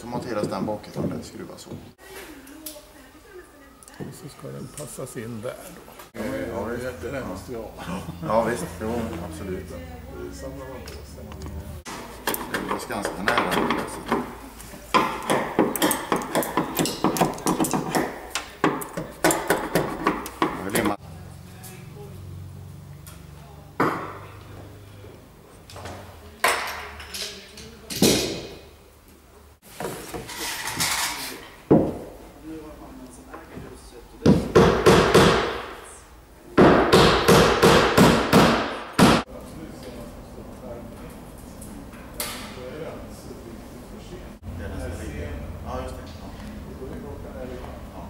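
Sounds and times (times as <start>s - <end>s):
hammering on wood: 12.2s - 21.0s, 34.2s - 35.7s, 36.6s - 39.3s.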